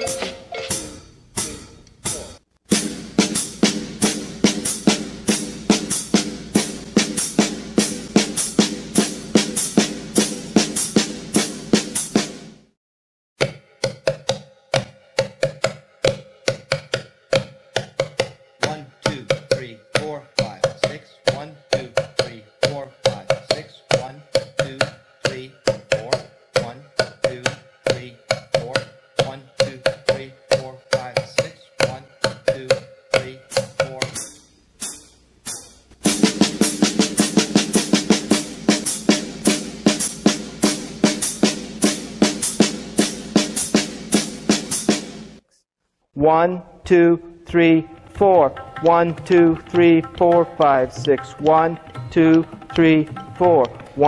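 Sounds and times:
ringing drum pitch: 0:00.0 - 0:12.4, 0:18.0 - 0:45.2
drum kit playing: 0:00.0 - 0:12.8, 0:13.4 - 0:45.4, 0:48.4 - 0:54.0.

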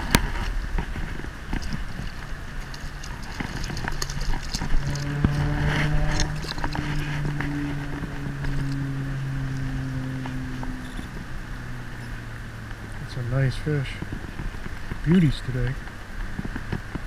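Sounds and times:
low motor hum: 0:00.0 - 0:17.0
fish splashing in water: 0:01.2 - 0:07.2.

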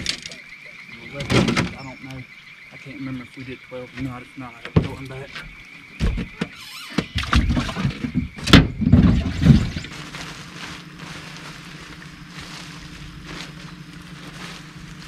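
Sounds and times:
trolling motor humming: 0:00.0 - 0:15.0
knocks and thumps on boat deck: 0:04.0 - 0:09.9.

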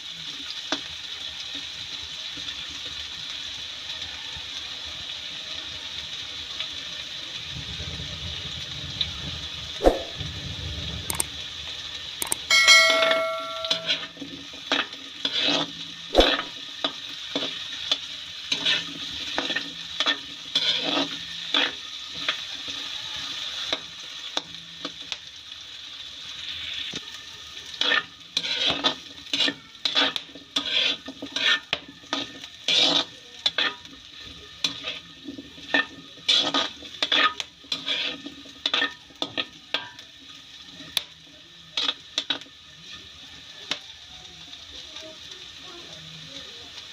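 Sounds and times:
potatoes sizzling in a wok: 0:00.0 - 0:46.9
metal ladle scraping a pan: 0:12.5 - 0:16.6, 0:18.5 - 0:22.4, 0:27.7 - 0:34.0, 0:34.6 - 0:39.9.

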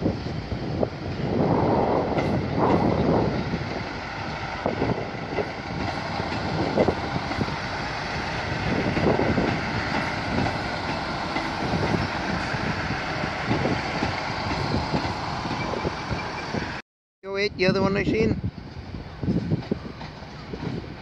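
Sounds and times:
diesel train engines running: 0:00.0 - 0:16.8, 0:18.0 - 0:21.0
train wheels clattering over rail joints: 0:02.0 - 0:16.5.

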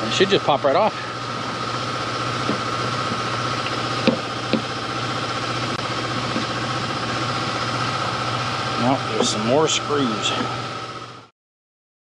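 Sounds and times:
idling engine hum: 0:00.0 - 0:11.3.

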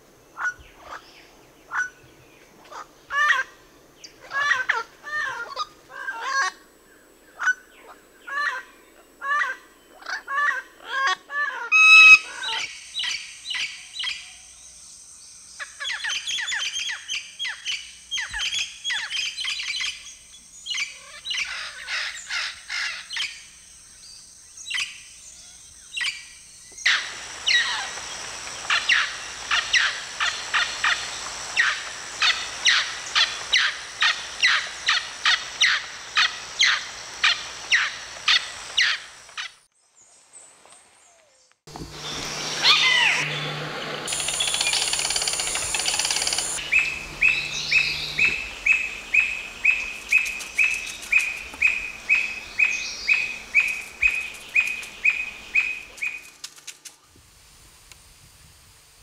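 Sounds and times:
parrot calling in runs: 0:09.2 - 0:12.7, 0:42.0 - 0:56.2
parrot fast loud calls: 0:09.2 - 0:12.7, 0:26.9 - 0:39.5, 0:42.5 - 0:43.5
parrot short calls: 0:42.6 - 0:43.4.

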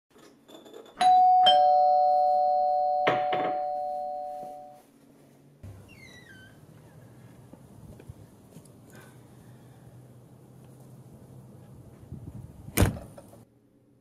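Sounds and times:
two-tone doorbell chime: 0:01.0 - 0:04.8.

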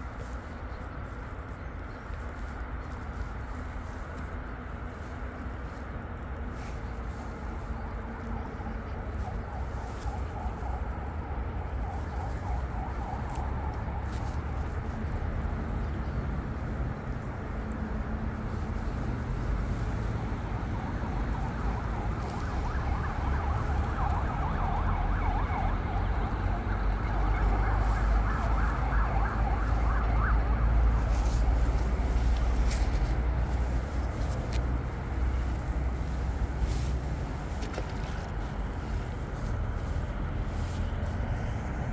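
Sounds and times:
siren wailing: 0:08.6 - 0:14.5, 0:21.4 - 0:31.0.

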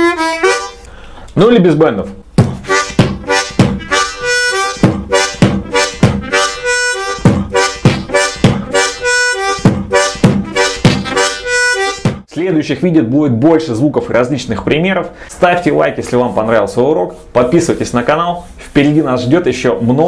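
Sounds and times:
harmonica two-note phrases: 0:00.0 - 0:01.0, 0:02.6 - 0:12.2
harmonica beatboxing: 0:00.0 - 0:01.3, 0:02.4 - 0:12.3.

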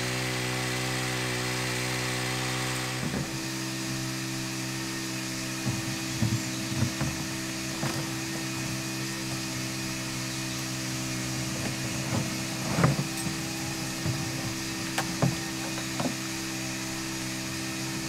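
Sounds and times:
winch motor humming: 0:00.0 - 0:18.0
pipe knocking and scraping on stones: 0:05.5 - 0:08.6, 0:11.4 - 0:16.3.

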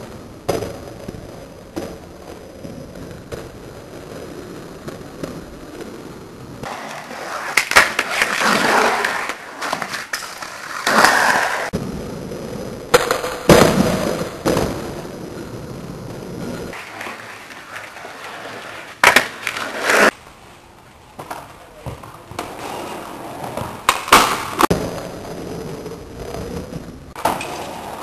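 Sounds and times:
skateboard wheels rolling on pavement: 0:00.0 - 0:28.0
skateboard clacks: 0:06.6 - 0:11.8, 0:12.9 - 0:15.6, 0:16.4 - 0:20.2, 0:21.1 - 0:25.3, 0:27.1 - 0:28.0.

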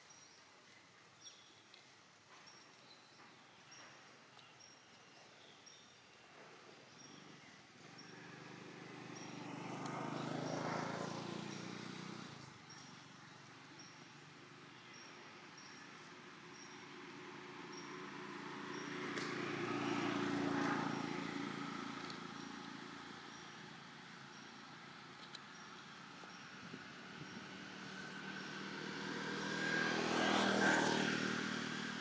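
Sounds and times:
vehicles passing: 0:07.0 - 0:32.0.

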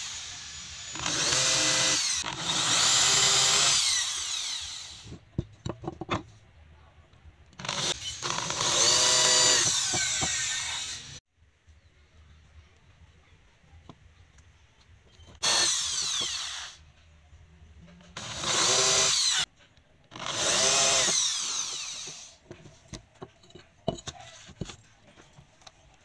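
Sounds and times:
electric drill boring into wood: 0:00.0 - 0:05.1, 0:07.6 - 0:11.2, 0:15.4 - 0:16.8, 0:18.2 - 0:19.5, 0:20.2 - 0:22.4.

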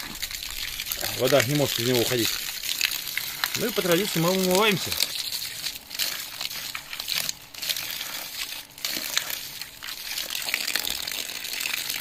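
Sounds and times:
water splashing on face: 0:00.0 - 0:09.4
water pouring from hose: 0:00.0 - 0:12.0.

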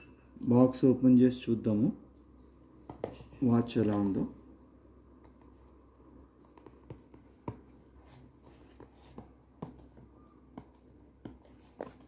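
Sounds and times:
fingers tapping and scratching cardboard: 0:06.4 - 0:12.0.

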